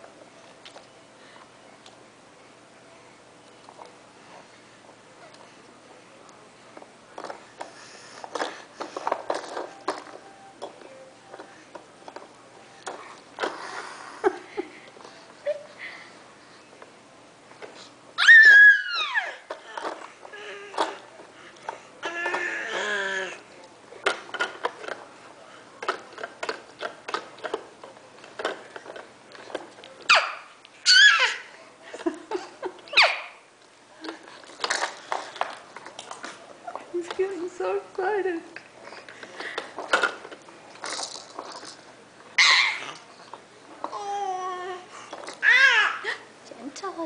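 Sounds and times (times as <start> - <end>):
plastic toys clicking and rattling: 7.2 - 12.3, 24.0 - 25.0, 25.8 - 30.1, 34.0 - 36.2, 39.0 - 41.9
baby squealing: 18.2 - 19.4, 30.1 - 31.4, 42.4 - 43.0.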